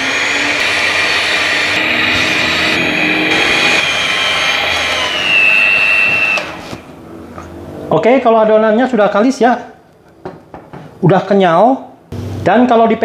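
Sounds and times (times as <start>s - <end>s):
electric mixer motor whine: 0.0s - 6.9s.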